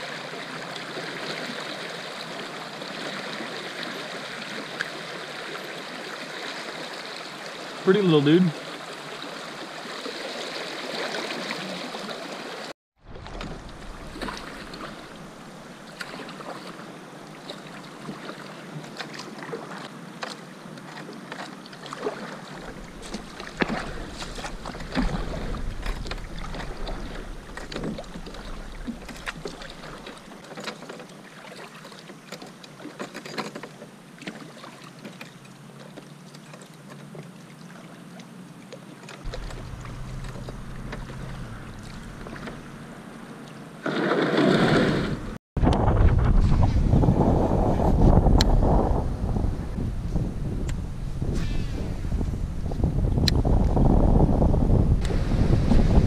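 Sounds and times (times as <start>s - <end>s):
kayak paddle strokes in water: 0.0s - 45.4s, 46.2s - 56.0s
water splashing: 0.0s - 49.0s
wind rumbling on microphone: 13.0s - 18.2s, 22.2s - 30.4s, 39.2s - 43.4s, 44.3s - 56.0s
knocks and drips: 39.3s - 42.9s.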